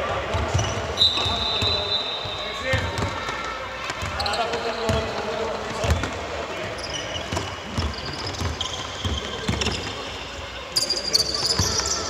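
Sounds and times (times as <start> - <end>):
sneakers squeaking on floor: 0.3 - 12.0.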